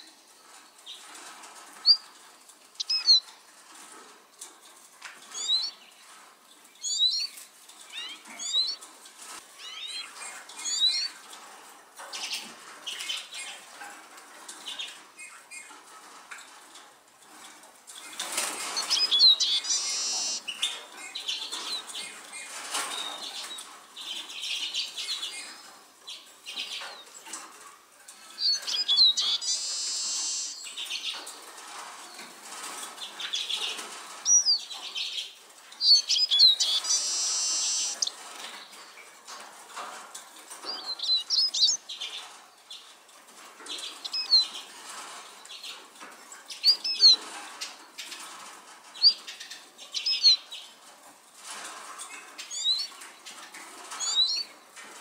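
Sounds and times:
siskin twittering song: 2.8 - 3.2, 5.4 - 5.7, 6.8 - 7.3, 8.0 - 8.8, 9.6 - 11.1, 18.8 - 20.5, 28.4 - 30.9, 34.2 - 34.7, 35.8 - 38.1, 40.7 - 41.9, 44.0 - 44.5, 46.6 - 47.2, 52.5 - 52.9, 54.0 - 54.4
sharp whistled bird notes: 18.8 - 20.4, 28.4 - 30.6, 36.0 - 38.1.

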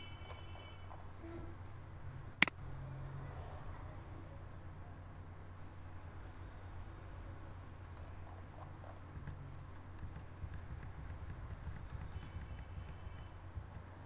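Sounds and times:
computer mouse clicks: 9.2 - 13.9.

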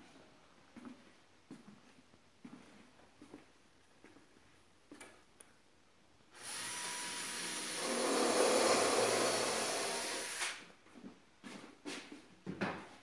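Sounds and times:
power tool whining: 6.4 - 10.6.

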